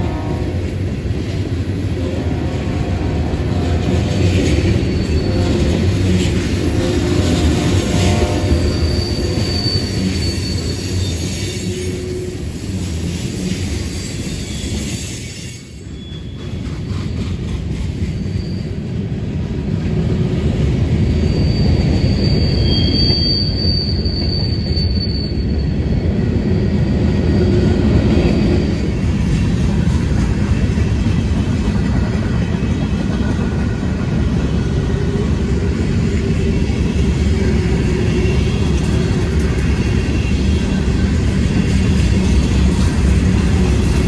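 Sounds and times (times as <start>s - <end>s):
train wheels rumbling on rail: 0.0s - 44.0s
high-pitched wheel squeal: 4.5s - 6.0s, 6.6s - 12.6s, 13.9s - 16.7s, 18.1s - 18.8s, 21.2s - 26.0s.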